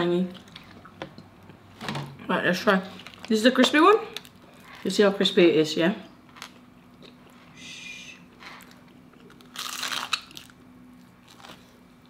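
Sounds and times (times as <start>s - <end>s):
fried chicken crunching: 8.6s - 11.8s.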